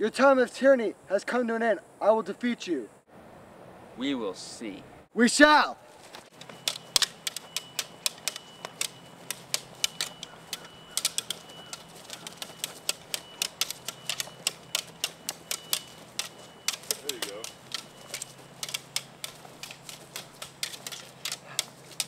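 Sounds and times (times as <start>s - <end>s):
swords clashing: 6.4s - 22.0s.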